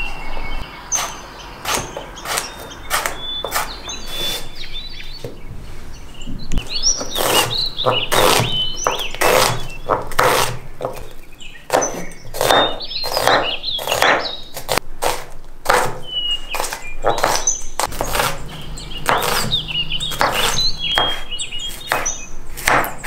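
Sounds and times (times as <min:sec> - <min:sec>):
birds chirping: 0:00.0 - 0:14.8, 0:15.7 - 0:23.0
knife chopping on wooden board: 0:01.0 - 0:03.8, 0:07.0 - 0:11.1, 0:11.7 - 0:16.0, 0:16.6 - 0:18.4, 0:19.0 - 0:19.5, 0:20.1 - 0:23.0.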